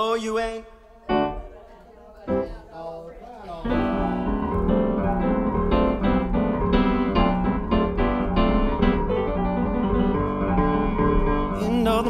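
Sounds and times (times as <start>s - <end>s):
keyboard piano chords: 1.1s - 2.7s, 3.6s - 12.0s
bass line: 3.6s - 12.0s.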